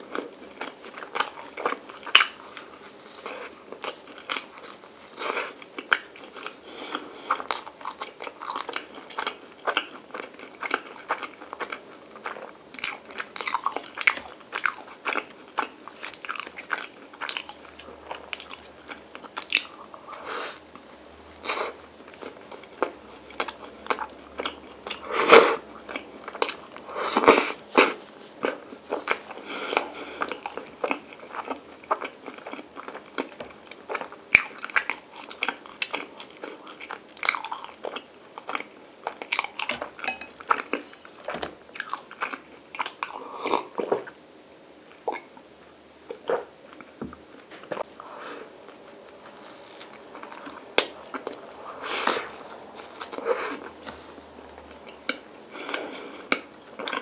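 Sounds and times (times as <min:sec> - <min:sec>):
chewing and biting bread: 0:05.4 - 0:19.8, 0:25.8 - 0:43.7.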